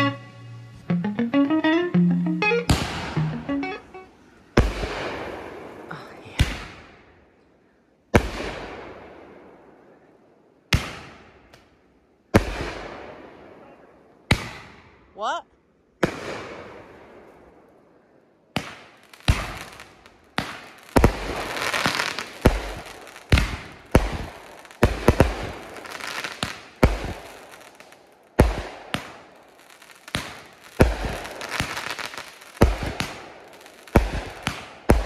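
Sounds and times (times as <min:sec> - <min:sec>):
firework bangs echoing: 0:18.6 - 0:27.8, 0:28.4 - 0:35.0
firework hissing crackle: 0:18.6 - 0:35.0.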